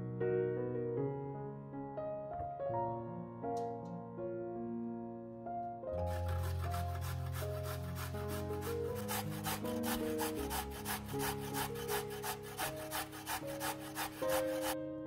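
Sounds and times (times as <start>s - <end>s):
carrot grated on metal grater: 6.1s - 14.8s.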